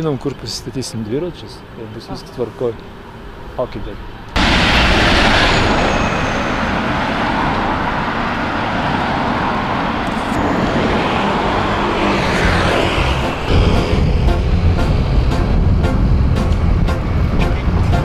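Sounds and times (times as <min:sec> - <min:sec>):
city traffic: 0:00.0 - 0:18.0
rushing air: 0:04.4 - 0:18.0.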